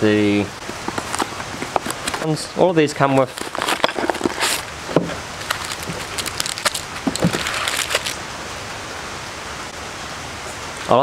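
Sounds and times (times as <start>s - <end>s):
steady background hiss: 0.0s - 11.0s
plastic wrap crinkling: 0.6s - 8.2s.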